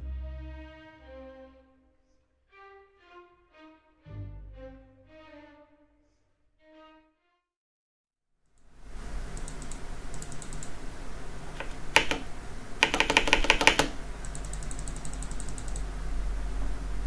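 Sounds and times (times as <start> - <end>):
computer fan noise: 8.6 - 17.0
mouse clicks: 9.3 - 10.8, 11.6 - 15.9
keyboard keystrokes: 9.4 - 10.8, 11.6 - 15.9.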